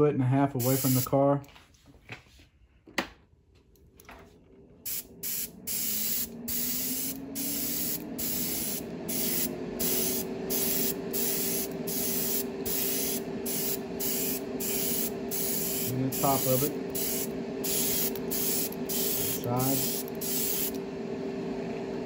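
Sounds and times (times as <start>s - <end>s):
airbrush spraying hissing bursts: 0.6s - 1.1s, 4.9s - 20.8s
low hum: 3.8s - 22.0s.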